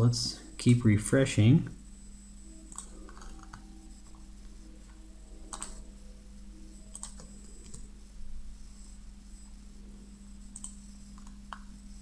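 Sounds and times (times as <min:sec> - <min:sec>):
faint electrical hum: 0:00.0 - 0:12.0
computer mouse clicks: 0:02.7 - 0:04.2, 0:05.5 - 0:05.8, 0:06.9 - 0:07.9, 0:10.5 - 0:11.7.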